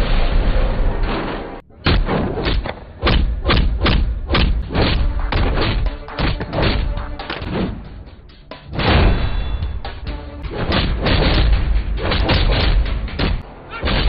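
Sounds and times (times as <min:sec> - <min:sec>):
heavy punches landing: 0:01.9 - 0:07.8, 0:08.7 - 0:14.0.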